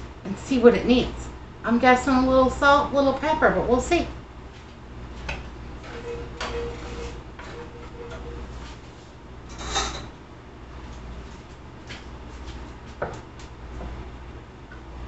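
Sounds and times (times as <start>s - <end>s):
wooden spoon scraping a skillet: 5.8s - 9.0s.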